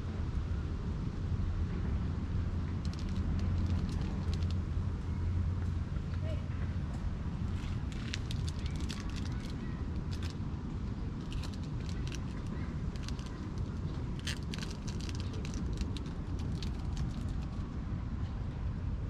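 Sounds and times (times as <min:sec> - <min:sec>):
low outdoor rumble: 0:00.0 - 0:19.0
faint crackling clicks: 0:02.8 - 0:04.6.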